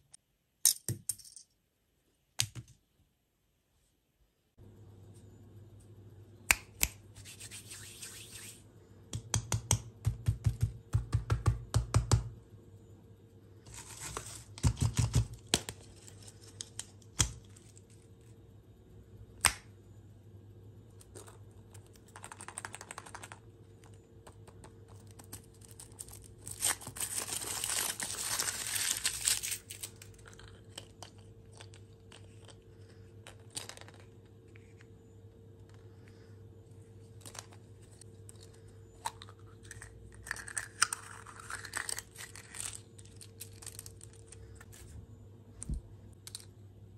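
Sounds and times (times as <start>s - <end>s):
clicks and taps of candy handling: 9.1s - 12.3s, 14.6s - 17.5s, 21.0s - 26.2s
foil wrapper crinkling and tearing: 25.2s - 30.9s.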